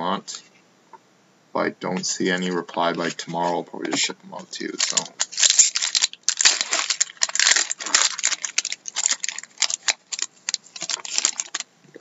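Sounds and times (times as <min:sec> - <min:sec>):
foil wrapper crinkling: 0:04.5 - 0:11.7.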